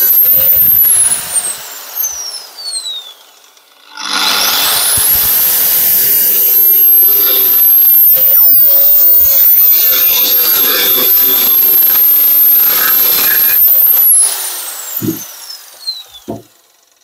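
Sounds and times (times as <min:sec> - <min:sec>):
angle grinder cutting steel: 0:00.0 - 0:17.0
grinder disc spinning down: 0:00.0 - 0:17.0
low knocks: 0:16.3 - 0:16.5.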